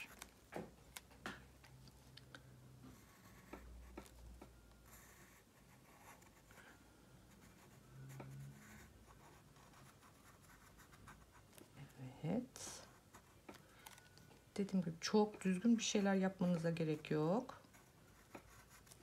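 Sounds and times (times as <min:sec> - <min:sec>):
pencil scratching on paper: 0:02.9 - 0:04.2, 0:04.9 - 0:06.6, 0:07.3 - 0:11.7, 0:17.4 - 0:19.0.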